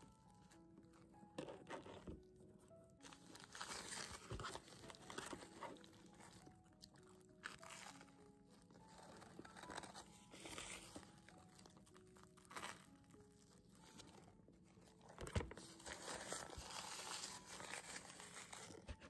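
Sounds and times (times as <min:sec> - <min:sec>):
crunching toasted sandwich: 0:03.0 - 0:13.3
paper napkin crinkling: 0:03.0 - 0:19.0.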